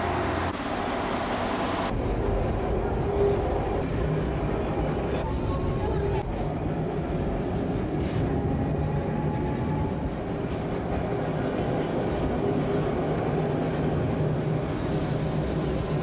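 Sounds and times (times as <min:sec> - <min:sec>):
tram rumbling on rails: 0:00.0 - 0:16.0.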